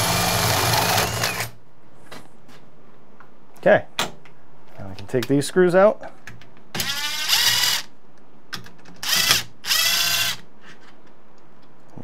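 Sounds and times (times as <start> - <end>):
cordless drill running: 0.0 - 1.5, 6.8 - 7.9, 9.0 - 10.4.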